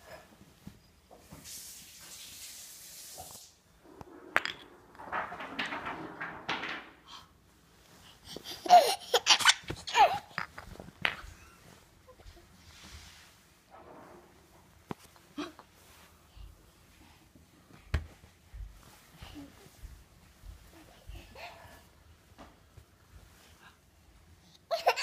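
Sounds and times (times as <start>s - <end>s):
soft rustling: 7.5s - 24.4s.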